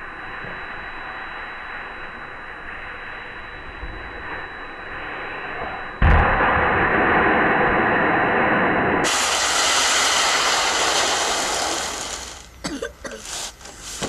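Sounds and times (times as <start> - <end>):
plastic sled scraping on icy snow: 13.2 - 14.0.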